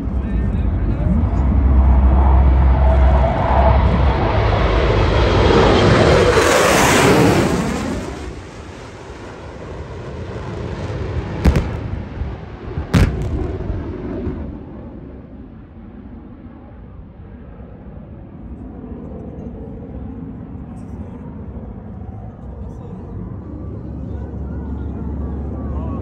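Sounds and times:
low rumble: 0:00.0 - 0:18.9
jets roaring overhead: 0:00.0 - 0:26.0
sharp bangs: 0:11.4 - 0:14.4.

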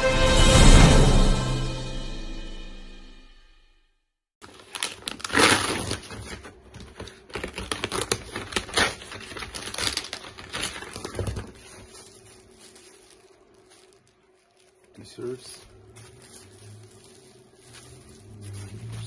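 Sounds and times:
bubble wrap rustling: 0:04.4 - 0:19.0
cardboard box tearing open: 0:04.5 - 0:12.0.

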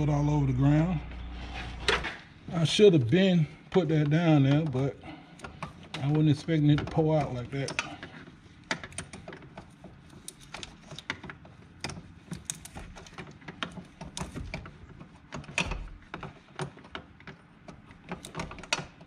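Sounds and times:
clicks and taps on metal fittings: 0:05.4 - 0:19.0.

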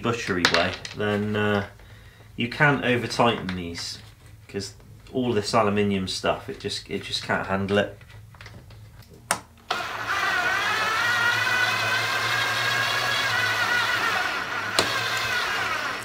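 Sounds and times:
cordless drill running: 0:09.7 - 0:16.0
drill clicks: 0:09.7 - 0:16.0.

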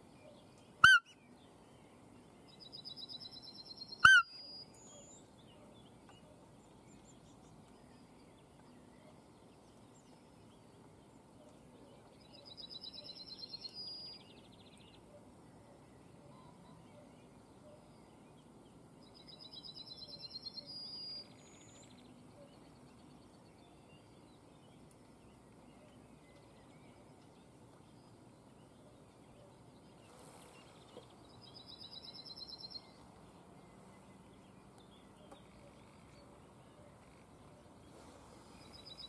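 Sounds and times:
faint field ambience: 0:00.0 - 0:39.0
songbird singing: 0:00.0 - 0:39.0.

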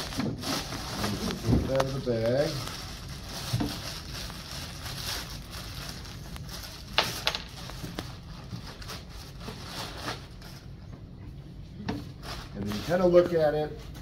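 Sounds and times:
sharp crackles: 0:00.0 - 0:08.3
plastic bag crinkling: 0:00.0 - 0:10.6.

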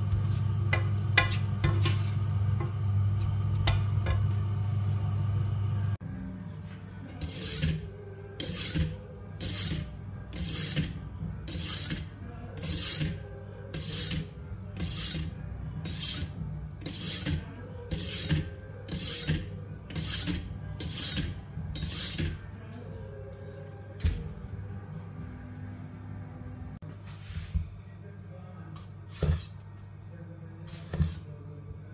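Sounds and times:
steady low hum: 0:00.0 - 0:31.9
knife scraping on sharpening rod: 0:07.1 - 0:22.4.

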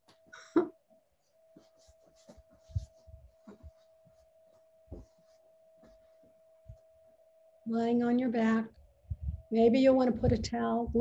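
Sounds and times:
faint steady tone: 0:00.0 - 0:11.0
soft thumps and rustling on mat: 0:01.5 - 0:06.4
body bumping on floor: 0:01.6 - 0:04.2, 0:04.9 - 0:06.1.

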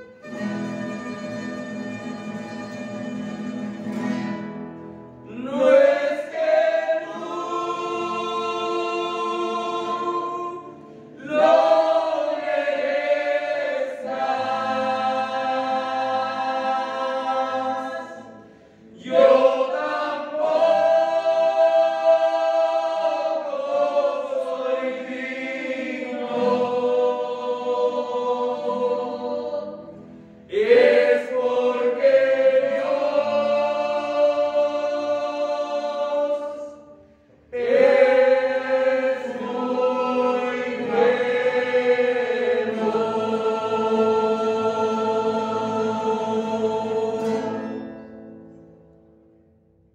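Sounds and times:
choir singing a slow hymn: 0:05.2 - 0:48.7.

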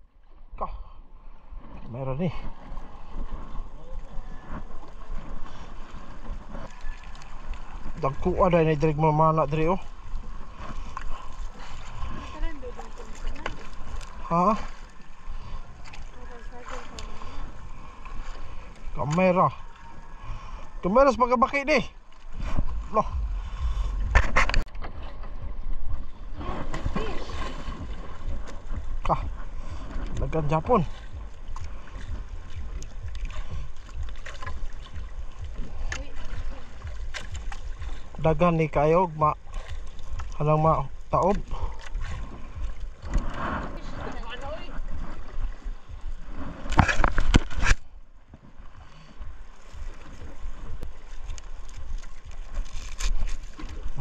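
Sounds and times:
low rumble: 0:00.0 - 0:52.5
net and fish handling rustles: 0:51.2 - 0:53.9.

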